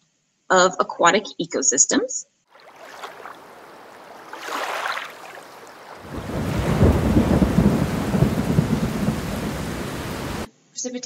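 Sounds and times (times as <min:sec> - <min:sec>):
rain hissing: 0:02.6 - 0:10.5
thunder rumbling: 0:03.1 - 0:10.5.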